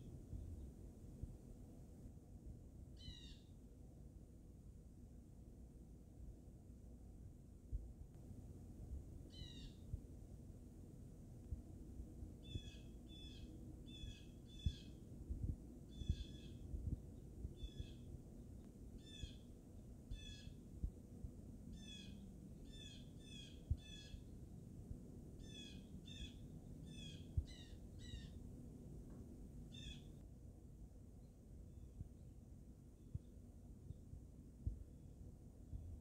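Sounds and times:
low background rumble: 0:00.0 - 0:36.0
blue jay calling: 0:03.0 - 0:03.6, 0:09.3 - 0:09.9, 0:12.4 - 0:15.0, 0:15.9 - 0:16.7, 0:17.6 - 0:18.1, 0:18.9 - 0:19.5, 0:20.1 - 0:20.6, 0:21.7 - 0:24.3, 0:25.4 - 0:28.4, 0:29.7 - 0:30.2.

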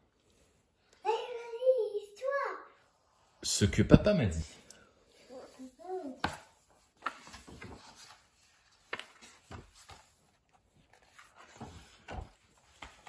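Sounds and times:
paper pages rustling: 0:05.3 - 0:13.0.

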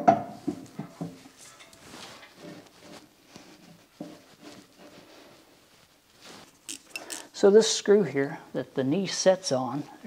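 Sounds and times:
metal clinks and taps: 0:06.7 - 0:07.3.

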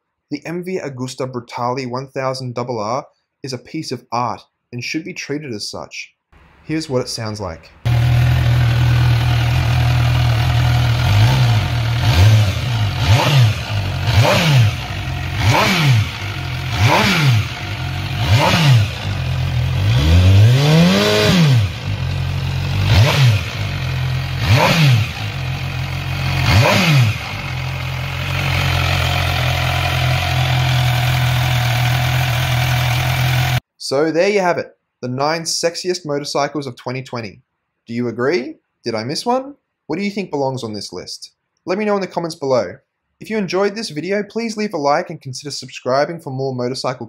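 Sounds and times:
motorcycle engine revving: 0:07.8 - 0:33.6
motorcycle engine idling: 0:07.9 - 0:33.6.

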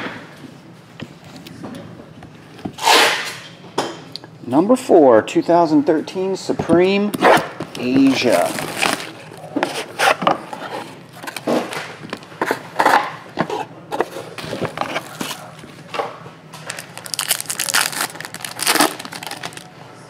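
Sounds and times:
plastic shrink-wrap crinkling: 0:08.0 - 0:09.6, 0:16.6 - 0:19.7
plastic wrapper crinkling in fingers: 0:16.6 - 0:19.7.

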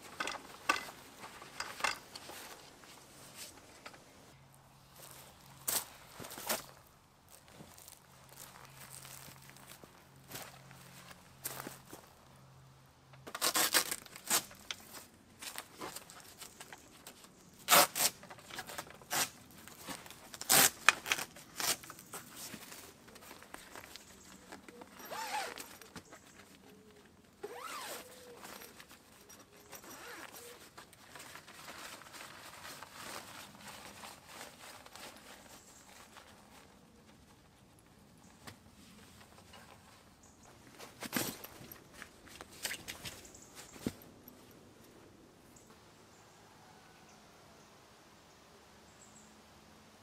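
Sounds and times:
tent poles clicking and knocking: 0:00.0 - 0:04.1, 0:13.2 - 0:44.3
tent canvas rustling: 0:00.0 - 0:12.4, 0:13.2 - 0:44.5.

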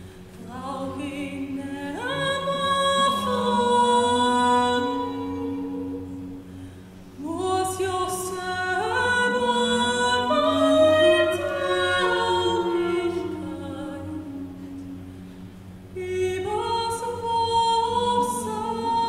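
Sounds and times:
low sustained drone: 0:00.0 - 0:19.0
choir singing: 0:00.6 - 0:06.1, 0:07.3 - 0:15.0
solo melody singing: 0:07.2 - 0:15.3.

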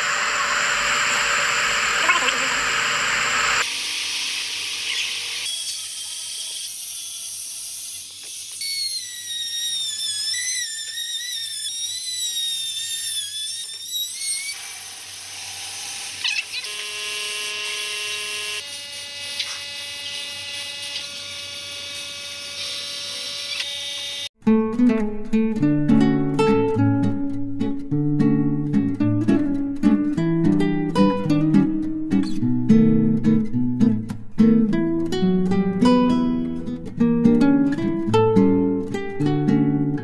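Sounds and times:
power tool whining on wood: 0:00.0 - 0:24.3.

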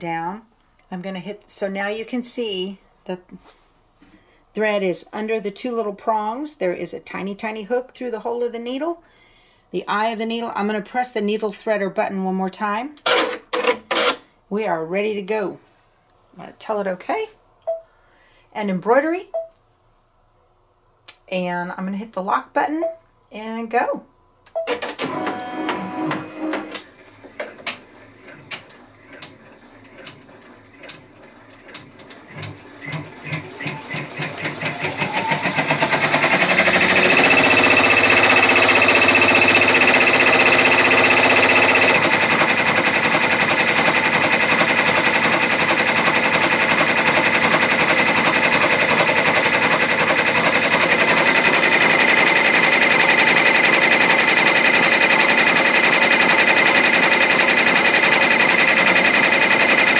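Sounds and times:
embroidery machine stitching: 0:13.1 - 0:14.2, 0:24.7 - 0:59.9.

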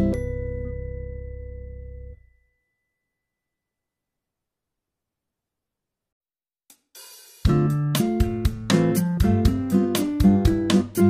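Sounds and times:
drum beat with melody: 0:06.7 - 0:11.0.

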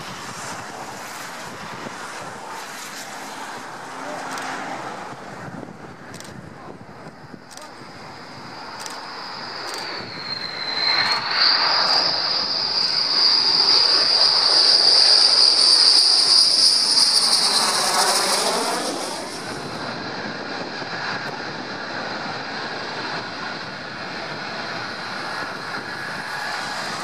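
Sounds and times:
jet engine whine: 0:00.0 - 0:27.0
jet rush passing overhead: 0:00.0 - 0:27.0.

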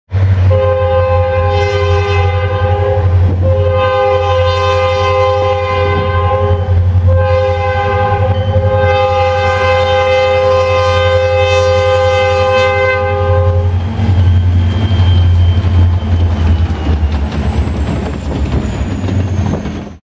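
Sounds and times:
locomotive air horn blast: 0:00.2 - 0:13.8
diesel engine low rumble: 0:13.4 - 0:20.0.

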